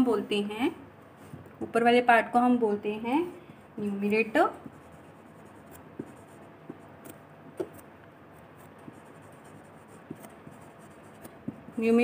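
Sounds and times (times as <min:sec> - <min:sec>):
marker writing on whiteboard: 0:03.4 - 0:12.0.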